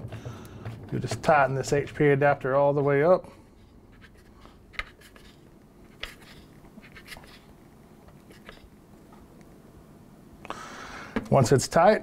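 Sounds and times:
faint clicks and scrapes: 0:03.4 - 0:09.2.

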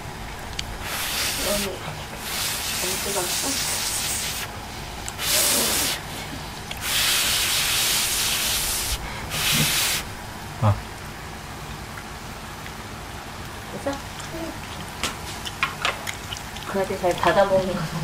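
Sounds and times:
person blowing on food: 0:05.2 - 0:10.1.

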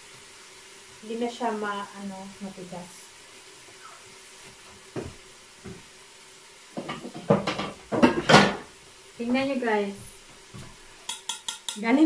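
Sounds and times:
knocks on chopping board: 0:06.8 - 0:08.6
kitchen utensils clattering: 0:06.8 - 0:08.7.

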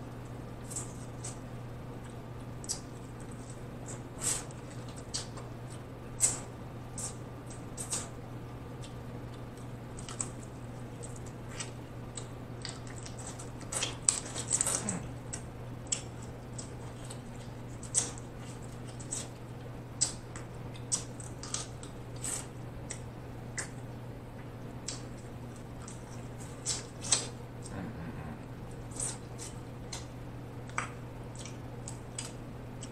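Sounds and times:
chewing clicks: 0:02.0 - 0:08.1, 0:08.8 - 0:23.8, 0:24.4 - 0:27.7, 0:28.9 - 0:32.9
low hum: 0:22.6 - 0:32.9.

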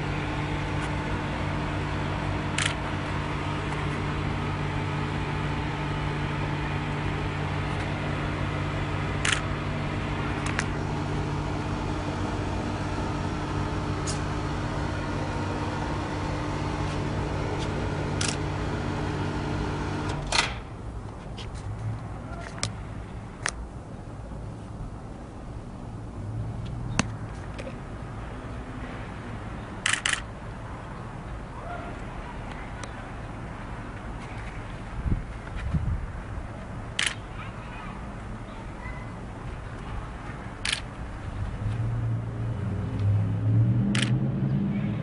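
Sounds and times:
low machine hum: 0:00.0 - 0:45.0
sharp clicks: 0:02.6 - 0:02.8, 0:09.2 - 0:09.5, 0:29.8 - 0:30.3, 0:36.9 - 0:37.3, 0:43.9 - 0:44.2.

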